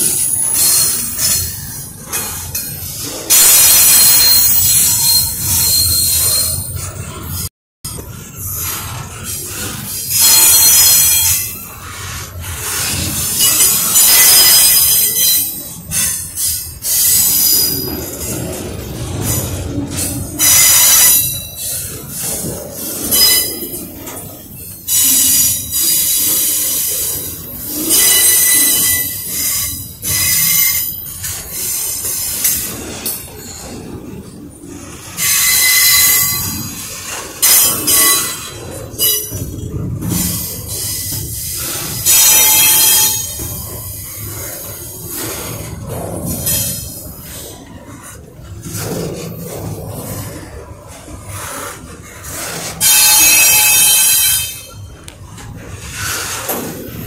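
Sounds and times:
freight train passing: 0:00.0 - 0:57.0
steel wheels squealing on rail: 0:00.0 - 0:57.0
high-pitched wheel squeal: 0:03.7 - 0:07.0, 0:27.9 - 0:31.0, 0:35.2 - 0:36.6, 0:52.7 - 0:55.0.

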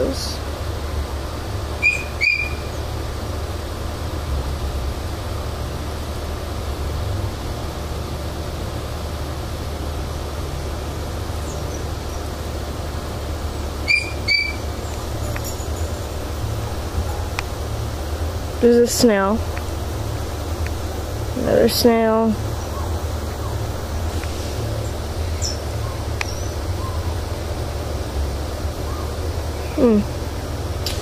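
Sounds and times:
steady low hum: 0:00.0 - 0:31.0
high squeaky chirps: 0:01.8 - 0:02.8, 0:13.8 - 0:16.2.

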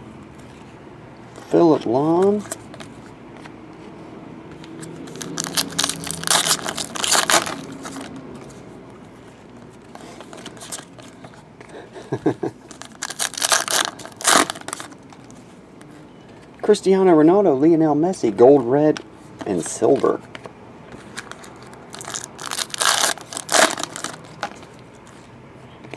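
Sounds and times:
foil wrappers crinkling and tearing: 0:05.0 - 0:08.2, 0:12.2 - 0:15.1, 0:21.1 - 0:24.7.

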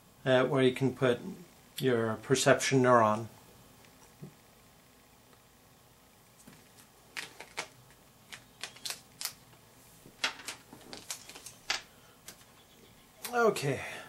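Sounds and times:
plastic connectors clicking on desk: 0:08.3 - 0:09.4.

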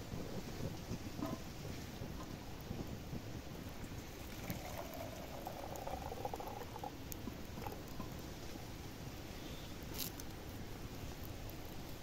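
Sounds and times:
campfire crackling: 0:00.2 - 0:12.0
water pouring into metal pot: 0:03.8 - 0:08.2.

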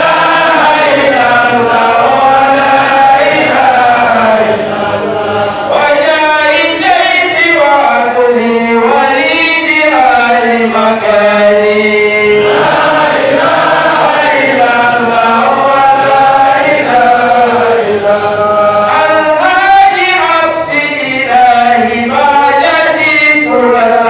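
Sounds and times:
man chanting into microphone: 0:00.0 - 0:24.0.

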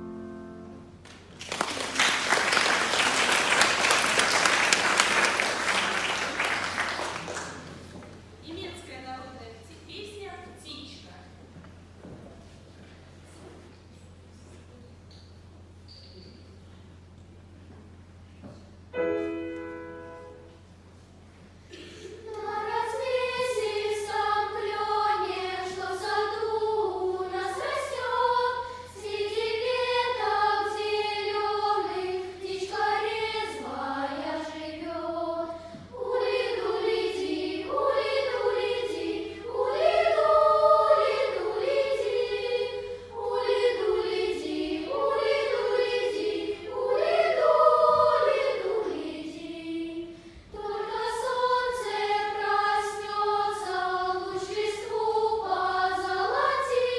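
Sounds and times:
children's choir singing: 0:00.0 - 0:01.0, 0:01.8 - 0:08.0, 0:19.0 - 0:20.6, 0:21.7 - 0:56.9.

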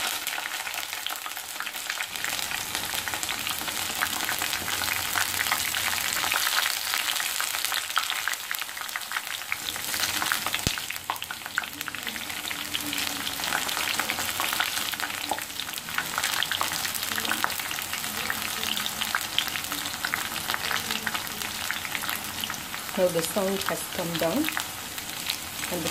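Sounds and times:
batter deep-frying in oil: 0:00.0 - 0:25.9.

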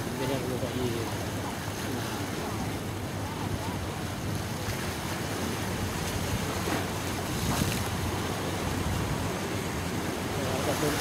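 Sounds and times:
sea washing: 0:00.0 - 0:11.0
wind on microphone: 0:02.4 - 0:10.1.

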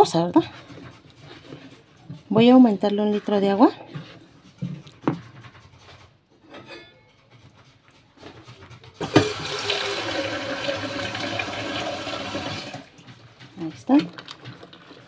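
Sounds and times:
wooden spoon stirring: 0:00.0 - 0:06.2, 0:12.3 - 0:15.0
water pouring into plastic tub: 0:09.0 - 0:12.9.

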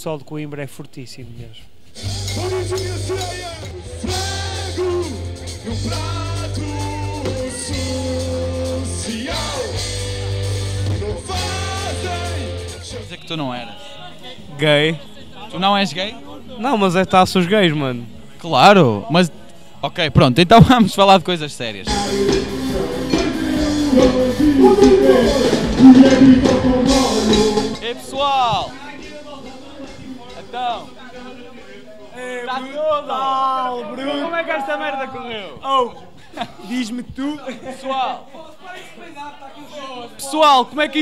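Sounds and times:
live rock band: 0:02.0 - 0:13.1, 0:21.9 - 0:28.1
heavy bass line: 0:02.1 - 0:12.9, 0:21.9 - 0:28.0
man singing: 0:02.4 - 0:09.9, 0:10.9 - 0:13.2, 0:21.9 - 0:27.9.

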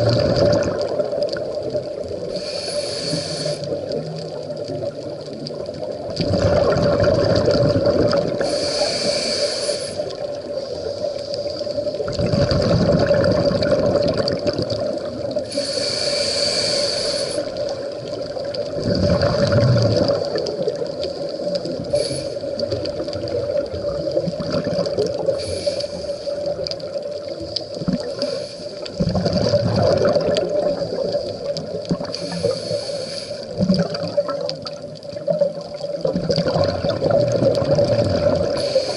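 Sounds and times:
exhaled bubbles gushing: 0:00.0 - 0:02.4, 0:03.7 - 0:08.6, 0:11.5 - 0:15.6, 0:17.4 - 0:25.5, 0:26.3 - 0:32.6, 0:33.5 - 0:38.9
regulator hiss on inhale: 0:02.2 - 0:04.4, 0:08.3 - 0:12.0, 0:15.4 - 0:18.2, 0:20.2 - 0:23.0, 0:25.2 - 0:29.0, 0:30.7 - 0:33.8, 0:38.4 - 0:38.9.

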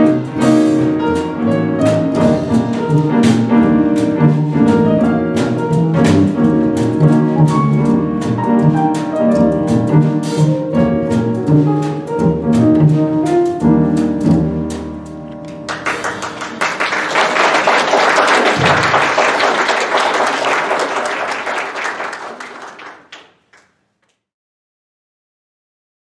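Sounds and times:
jazz piano trio playing: 0:00.0 - 0:20.2
audience applause: 0:15.7 - 0:23.8.

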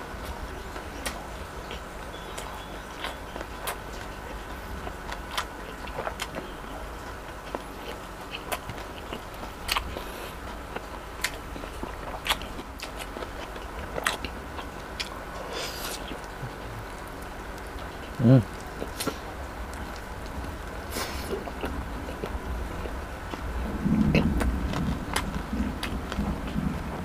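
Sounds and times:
chewing with sharp crunches: 0:00.2 - 0:27.0.

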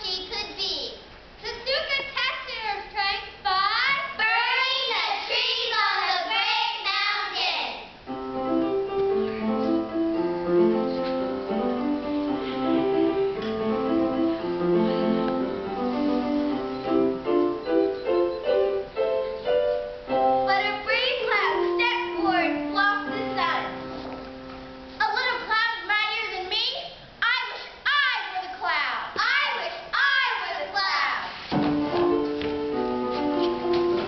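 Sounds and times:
keyboard playing chords: 0:08.1 - 0:25.0, 0:31.7 - 0:34.0.

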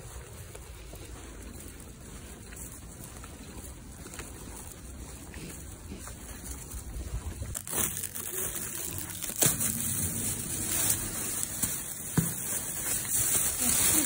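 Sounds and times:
plastic bag crinkling: 0:07.5 - 0:14.0
sharp plastic crackles: 0:07.5 - 0:14.0.

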